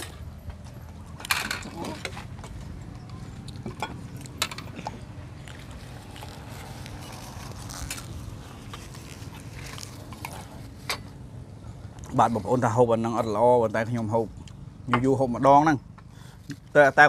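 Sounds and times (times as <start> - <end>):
chewing: 3.4 - 10.8.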